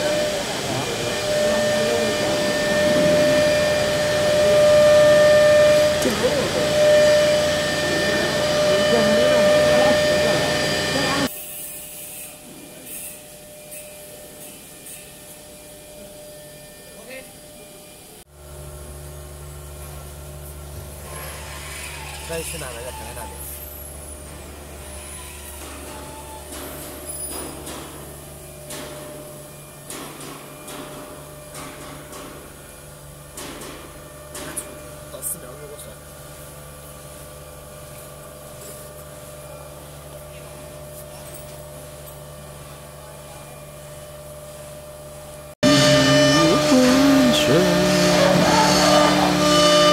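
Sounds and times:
vacuum press humming: 0:00.0 - 0:11.3, 0:45.6 - 0:49.9
held machine tones: 0:45.6 - 0:49.9.

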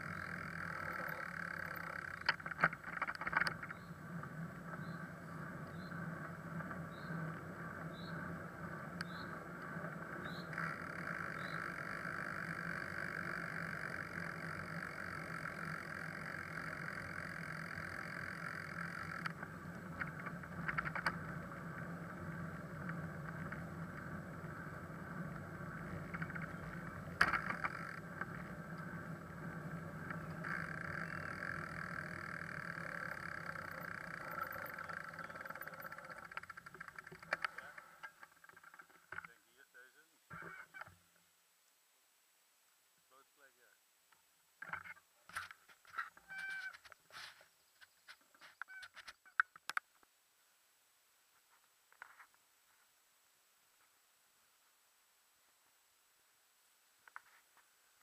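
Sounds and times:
bicycle tyres rolling on asphalt: 0:00.0 - 0:39.2.

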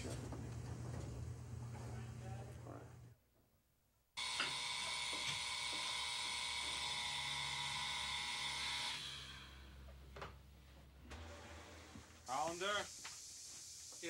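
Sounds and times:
alarm clock buzzing: 0:04.2 - 0:09.9.

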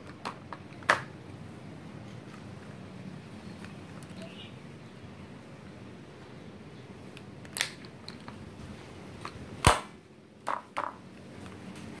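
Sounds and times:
loud snap: 0:09.6 - 0:10.0.

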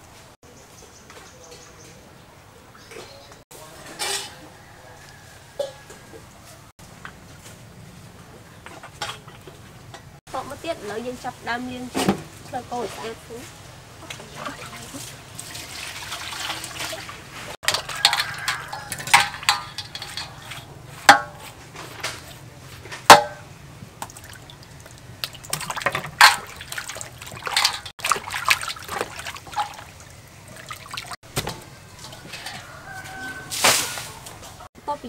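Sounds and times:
water pouring and splashing: 0:10.8 - 0:34.7
knocks in metal bowl: 0:17.6 - 0:21.4, 0:23.1 - 0:23.4.

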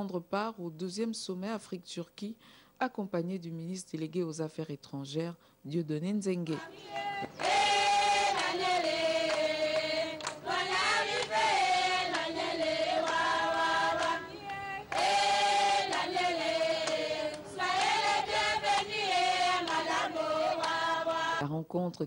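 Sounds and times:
women singing in unison: 0:06.4 - 0:21.4.

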